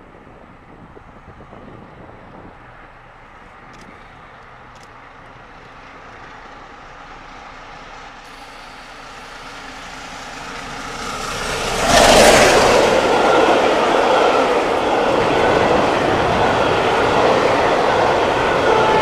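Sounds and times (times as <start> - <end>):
coaches rushing past on rails: 0.0 - 19.0
steam locomotive passing at speed: 5.4 - 19.0.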